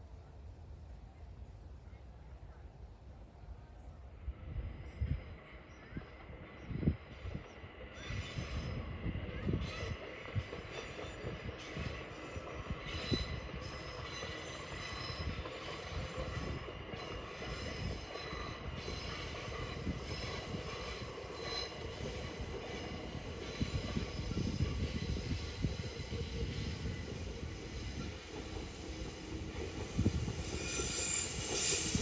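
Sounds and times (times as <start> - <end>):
train rumbling on rails: 0.0 - 32.0.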